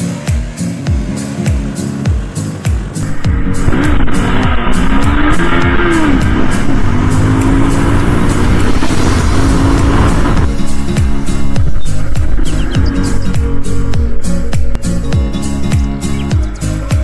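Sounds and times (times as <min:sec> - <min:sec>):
background music with beat: 0:00.0 - 0:17.0
motorcycle engine riding: 0:00.0 - 0:17.0
wind rushing over microphone: 0:03.0 - 0:15.6.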